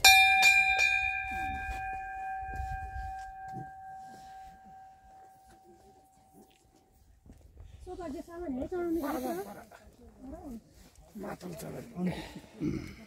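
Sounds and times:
brass bell ringing: 0.0s - 6.6s.

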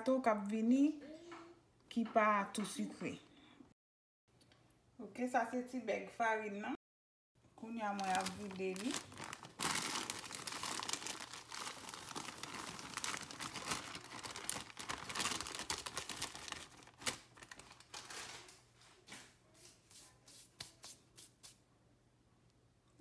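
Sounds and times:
flour bag crinkling and rustling: 7.8s - 19.2s.

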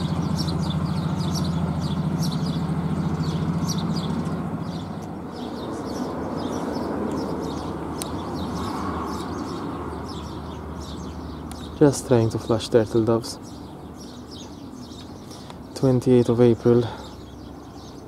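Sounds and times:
pulsing mechanical hum: 0.0s - 11.4s
small birds chirping: 0.0s - 18.0s.

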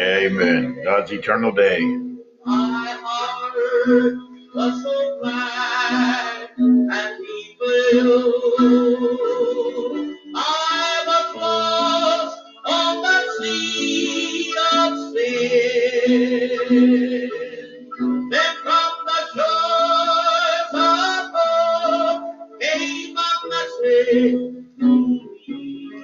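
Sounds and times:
guitar accompaniment: 0.0s - 26.0s
person singing with vibrato: 0.0s - 26.0s.

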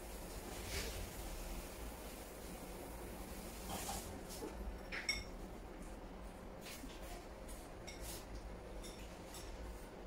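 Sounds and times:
chopsticks clinking on porcelain bowl: 4.8s - 5.4s.

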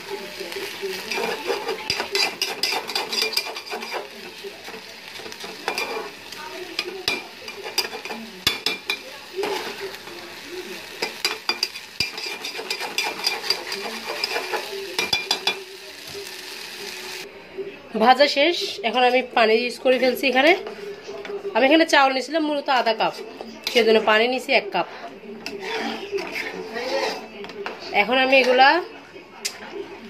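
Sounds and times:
rice sizzling in oil: 0.0s - 17.3s
spatula scraping pan: 0.6s - 15.6s, 22.6s - 24.2s, 24.8s - 28.7s.

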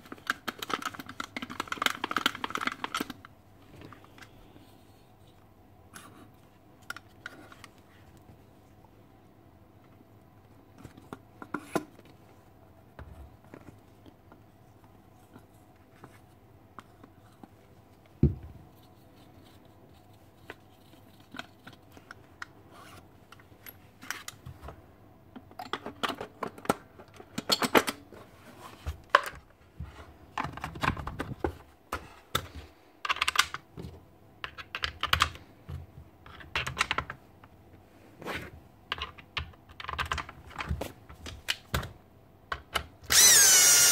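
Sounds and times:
plastic and metal clicks and scrapes: 0.0s - 3.3s.

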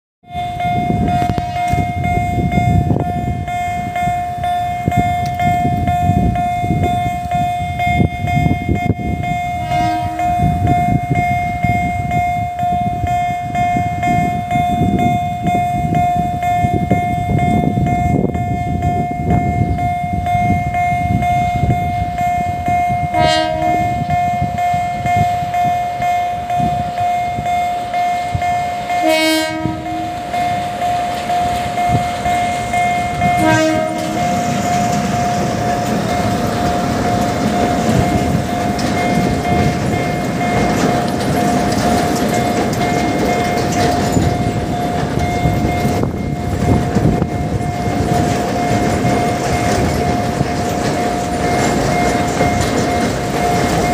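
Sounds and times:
level-crossing warning tone: 0.2s - 53.9s
locomotive engine and wheels: 0.2s - 53.9s
locomotive horn blasts: 0.8s - 2.0s, 9.5s - 10.7s, 23.0s - 24.4s, 28.7s - 30.7s, 33.2s - 34.7s.

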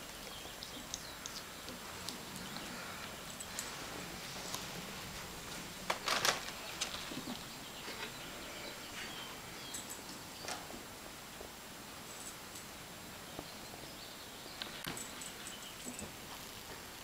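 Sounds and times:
faint steady hiss: 0.0s - 17.0s
kittens scuffling on carpet: 3.4s - 8.3s.

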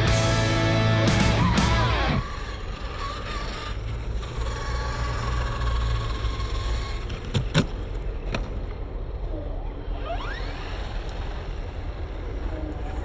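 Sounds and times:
low rumble: 0.0s - 2.2s
music: 0.0s - 2.2s
rc car motor whining: 0.0s - 13.0s.

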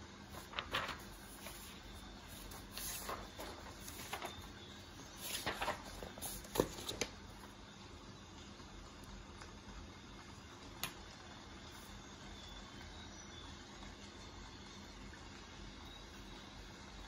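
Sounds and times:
paper rustling and sliding: 0.2s - 7.2s.

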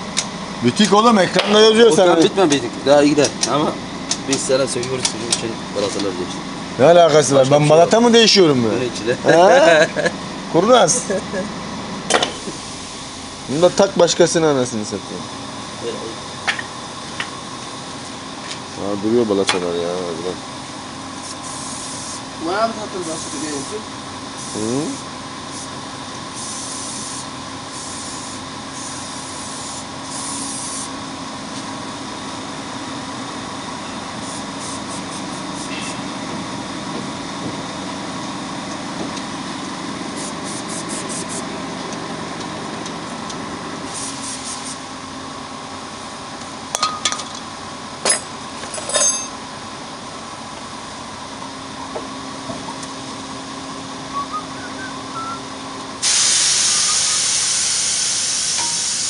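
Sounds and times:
steady low hum: 0.0s - 56.0s
air hissing: 12.2s - 13.6s, 21.2s - 31.0s, 34.2s - 36.2s, 40.0s - 41.5s, 43.8s - 44.9s, 56.0s - 59.0s
metallic tool clinks: 48.1s - 49.4s.

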